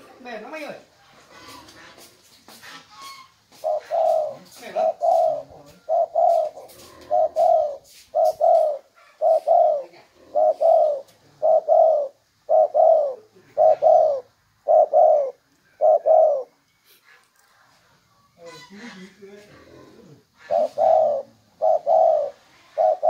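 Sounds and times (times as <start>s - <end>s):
dove cooing: 2.9s - 16.6s, 19.7s - 23.0s.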